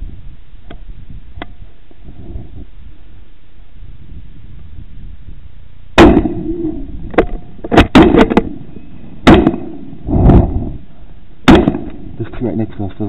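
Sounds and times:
sharp knocks on rifle: 0:07.1 - 0:08.5, 0:09.3 - 0:09.7, 0:11.5 - 0:12.0.

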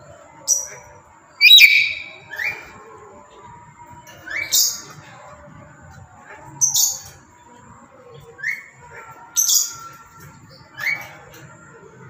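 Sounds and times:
parrot screeching: 0:01.4 - 0:02.2.

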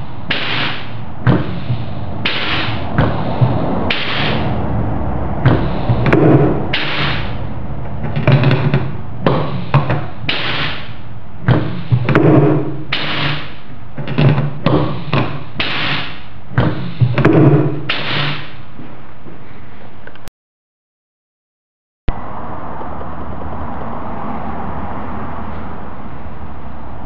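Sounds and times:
compressed air blasts hissing: 0:00.0 - 0:18.7
steady background hiss: 0:00.0 - 0:20.0
piston clunk: 0:00.3 - 0:04.5, 0:05.4 - 0:18.5.

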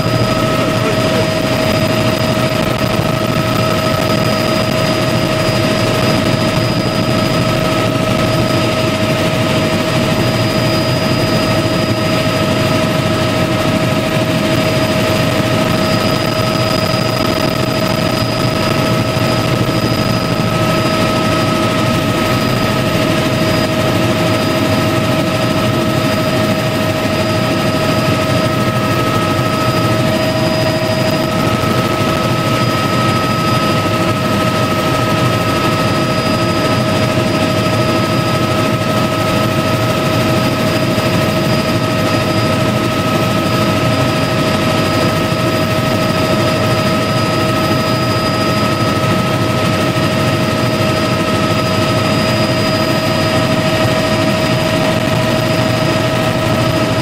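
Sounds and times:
constant high whine: 0:00.0 - 0:57.0
helicopter rotor and engine drone: 0:00.0 - 0:57.0.

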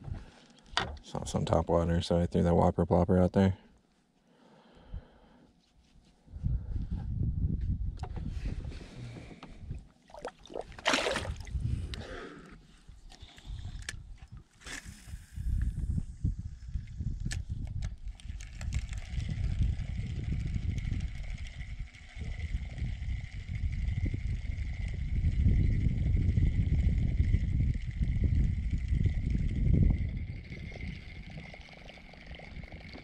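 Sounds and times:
wind rumbling on microphone: 0:06.3 - 0:33.0
water sloshing against kayak: 0:09.9 - 0:14.6
fishing reel whine: 0:14.6 - 0:33.0
reel clicks: 0:16.8 - 0:23.5.

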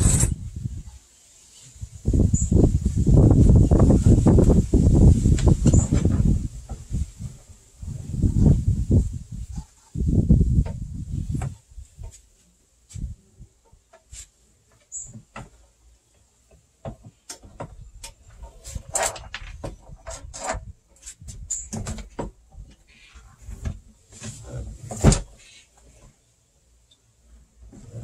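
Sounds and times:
metal handlebar clicking and rattling: 0:17.3 - 0:22.1.

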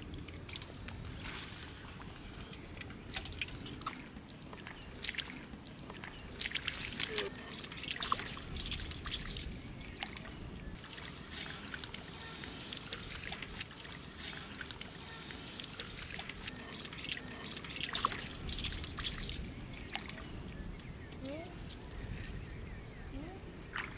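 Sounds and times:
wind rumble on microphone: 0:00.0 - 0:05.0, 0:08.0 - 0:11.9, 0:17.9 - 0:23.9
bare feet splashing through water: 0:00.0 - 0:20.4, 0:23.6 - 0:23.9.

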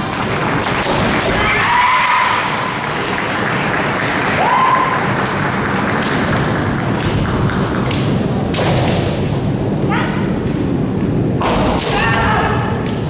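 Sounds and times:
busy hall noise: 0:00.0 - 0:13.0
fighters' shouts: 0:01.3 - 0:02.6.

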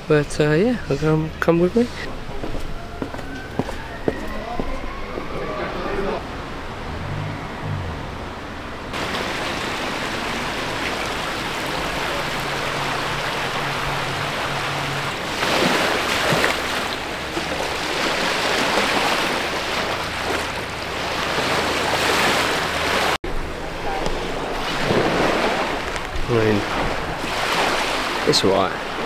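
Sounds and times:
small waves on pebble shore: 0:08.9 - 0:23.2, 0:24.2 - 0:29.0
stream rushing over stones: 0:08.9 - 0:23.2, 0:24.2 - 0:29.0.

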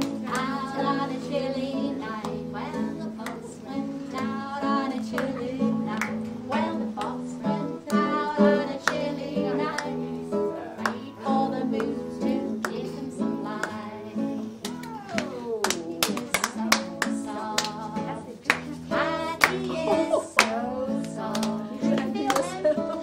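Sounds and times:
acoustic guitar strumming: 0:00.0 - 0:14.7
person singing: 0:00.0 - 0:23.0.

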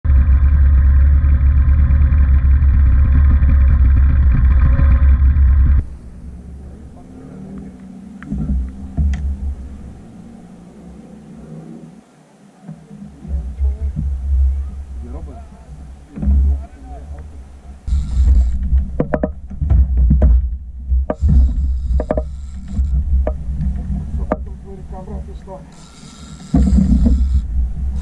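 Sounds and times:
outboard motor running: 0:00.1 - 0:10.6, 0:17.7 - 0:28.0
sharp clicks and knocks: 0:07.5 - 0:09.6, 0:17.9 - 0:27.6.

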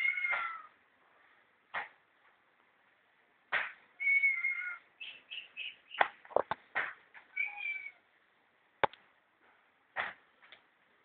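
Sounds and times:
cat meowing: 0:00.0 - 0:00.7, 0:04.0 - 0:04.9, 0:07.3 - 0:08.1
cat chirping calls: 0:04.0 - 0:05.8, 0:07.3 - 0:08.1
sharp knocks and clicks: 0:06.0 - 0:07.3.

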